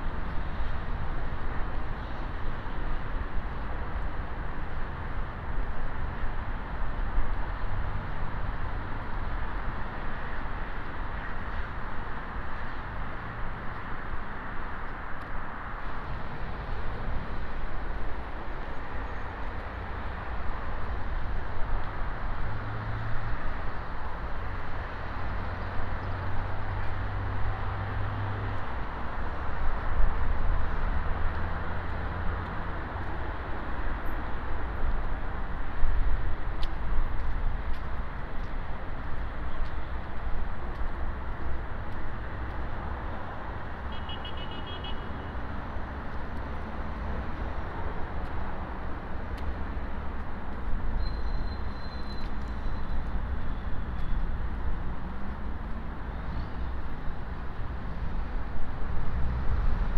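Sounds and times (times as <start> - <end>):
road traffic hum: 0.0 - 59.9.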